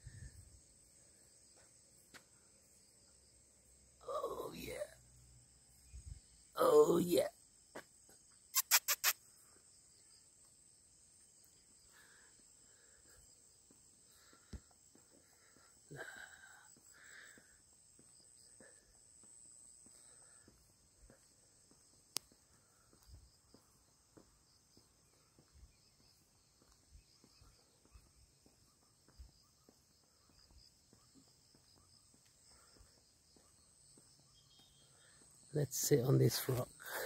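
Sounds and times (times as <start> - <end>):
high-pitched insect chorus: 0.0 - 37.0
soft footsteps: 16.7 - 34.8.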